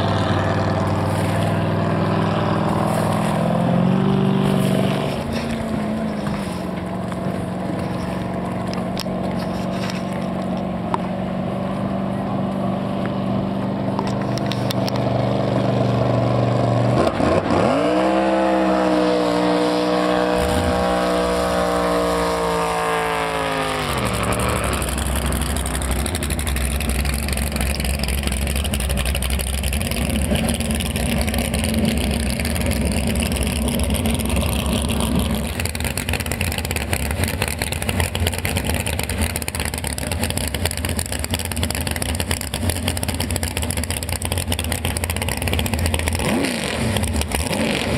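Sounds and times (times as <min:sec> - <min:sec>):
boat engine revving: 0:00.0 - 0:12.3, 0:13.4 - 0:47.9.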